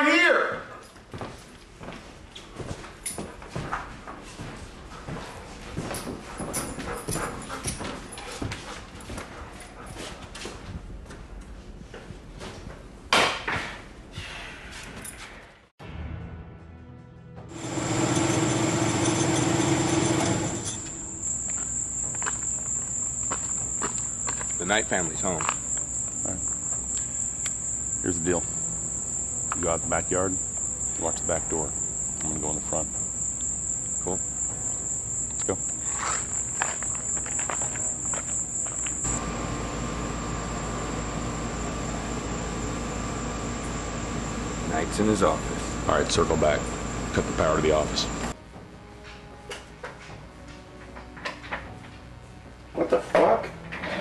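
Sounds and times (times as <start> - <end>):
crickets chirping: 17.6 - 48.4.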